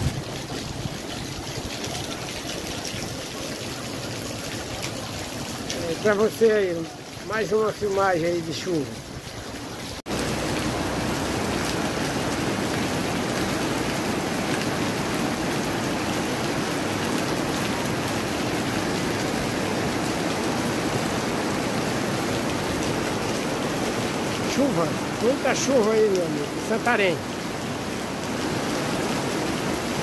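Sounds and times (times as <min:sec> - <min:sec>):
heavy rain on flooded street: 0:00.0 - 0:30.0.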